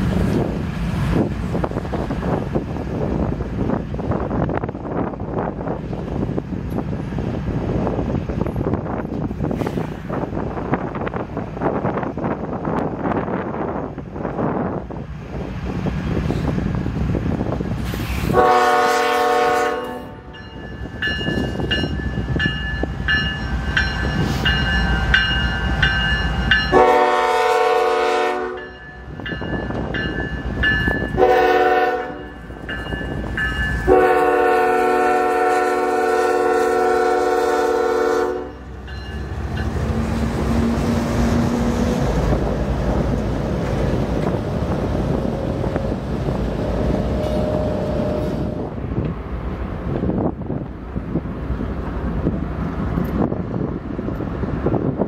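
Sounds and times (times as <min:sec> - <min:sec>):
freight cars rumbling on rails: 0:00.0 - 0:55.0
locomotive air horn blasts: 0:18.2 - 0:20.3, 0:26.7 - 0:28.6, 0:31.2 - 0:32.4, 0:33.9 - 0:38.6
diesel engines passing: 0:29.8 - 0:55.0
bell ringing: 0:38.8 - 0:39.8.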